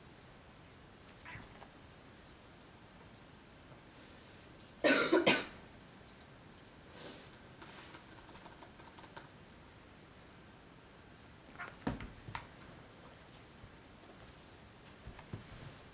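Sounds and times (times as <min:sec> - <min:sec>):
person coughing: 0:04.8 - 0:05.6
cats scuffing on carpet: 0:14.2 - 0:15.9.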